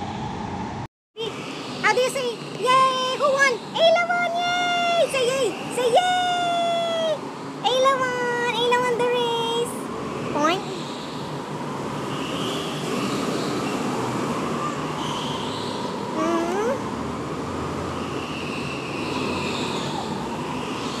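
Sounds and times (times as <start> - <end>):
go-kart engines lapping: 11.9 - 21.0.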